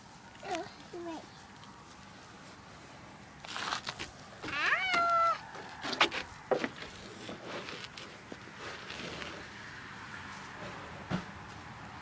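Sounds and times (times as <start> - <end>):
scuffs and knocks: 3.5 - 9.5.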